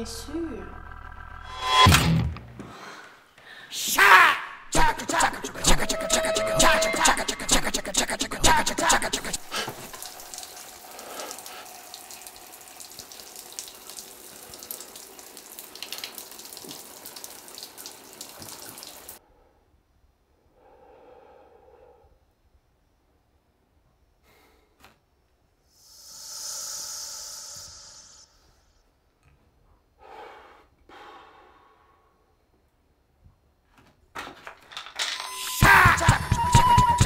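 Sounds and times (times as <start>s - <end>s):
loud breath: 2.6s - 3.8s, 20.5s - 22.2s, 25.8s - 28.7s, 30.0s - 32.3s
shower water spraying: 5.1s - 19.2s.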